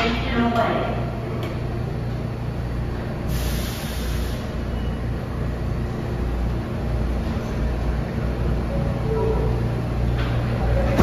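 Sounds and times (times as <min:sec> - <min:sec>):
subway train humming: 0:00.0 - 0:11.0
air brake hiss: 0:03.3 - 0:04.7.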